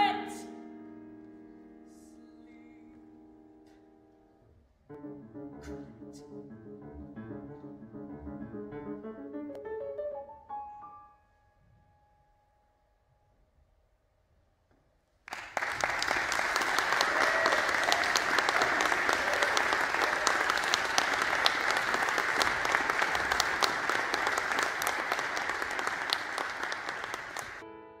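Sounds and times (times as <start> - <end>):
audience applauding: 15.3 - 27.6.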